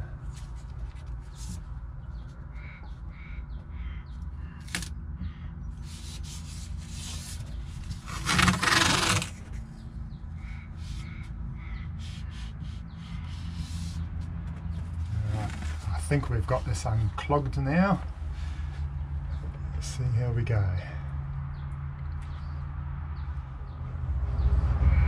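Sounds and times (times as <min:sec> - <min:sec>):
masking tape unrolling rasp: 0:05.8 - 0:09.5.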